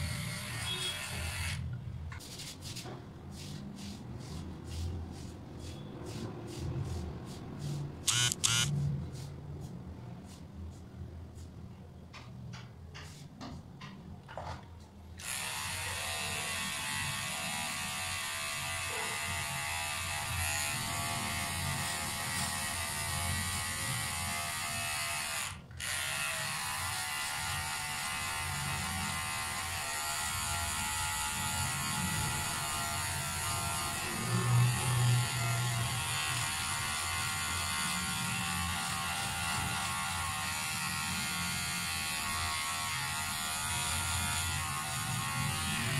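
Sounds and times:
electric hair trimmer buzzing: 0.0 - 1.6, 8.1 - 8.7, 15.2 - 45.9.

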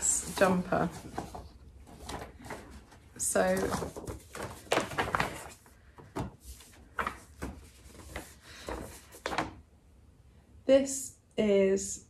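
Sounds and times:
paper rustling: 0.0 - 9.6.

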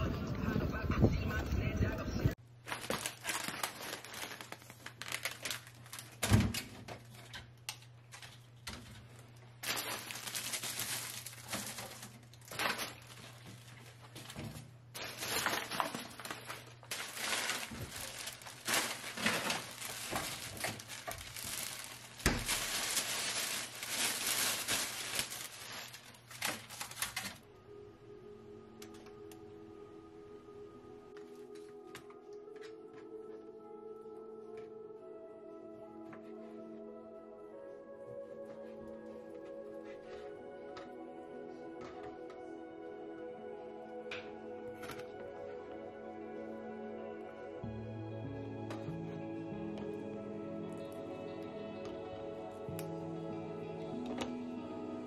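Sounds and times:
plastic bags crinkling: 2.6 - 6.5, 9.2 - 27.4.

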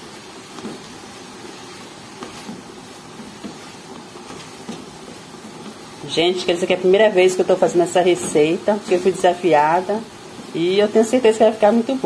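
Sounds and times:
cooking hiss: 0.0 - 12.0.

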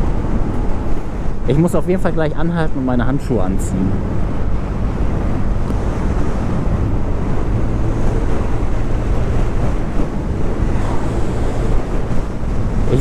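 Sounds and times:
wind buffeting microphone: 0.0 - 13.0
scooter engine hum: 3.5 - 13.0.

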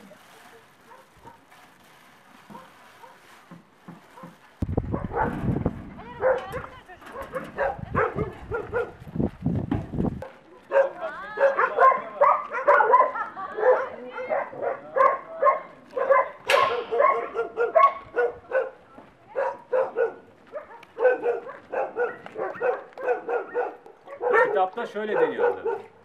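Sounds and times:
many dogs barking: 4.9 - 5.4, 6.2 - 9.0, 10.2 - 26.0.

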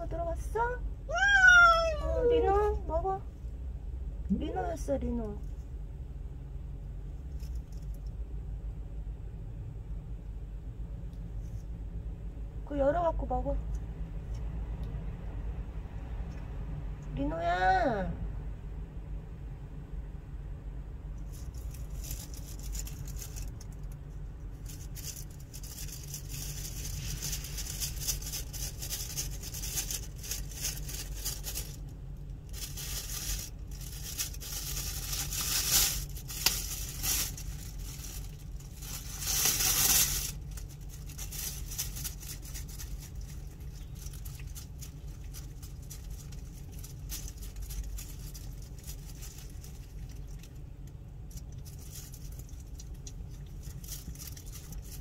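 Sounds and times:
dry leaves rustling: 21.3 - 50.6, 51.2 - 55.0
plastic bag crinkling: 21.3 - 50.6, 51.2 - 55.0.

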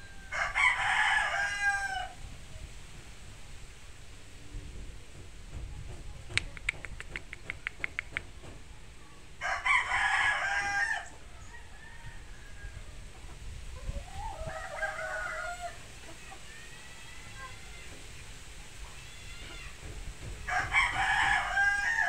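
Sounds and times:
rooster crowing: 0.0 - 2.2, 9.4 - 13.0, 14.1 - 15.9, 20.5 - 22.0
sharp claps: 6.3 - 8.6.

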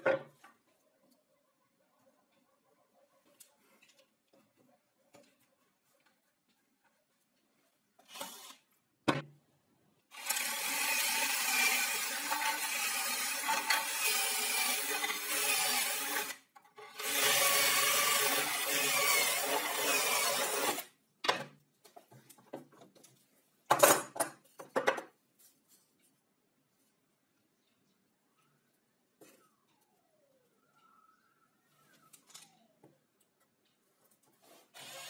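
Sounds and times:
wood block knocking and scraping: 0.0 - 0.7, 21.2 - 25.2
power drill boring into wood: 8.1 - 8.6, 10.1 - 20.9, 34.8 - 35.0.

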